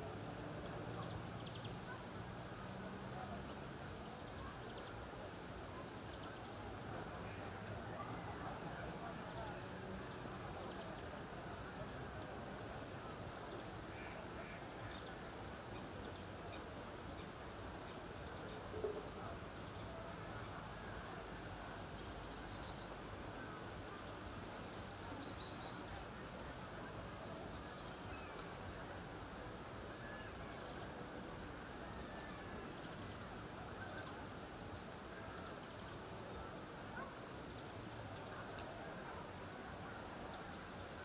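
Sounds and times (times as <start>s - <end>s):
outdoor background noise: 0.0s - 41.0s.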